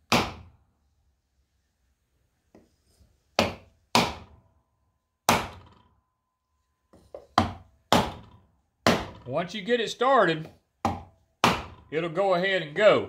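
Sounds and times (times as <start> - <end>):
hammer knocking on wooden block: 3.4 - 4.3, 6.9 - 9.2, 10.4 - 11.7.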